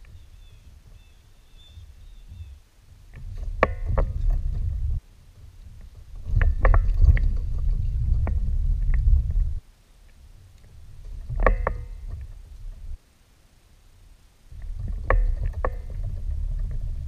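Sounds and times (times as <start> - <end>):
low rumble: 3.2 - 9.7.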